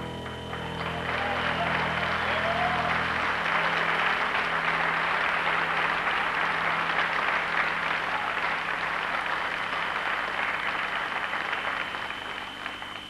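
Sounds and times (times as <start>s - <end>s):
band holding low note: 0.0s - 6.8s
audience applauding: 0.0s - 13.0s.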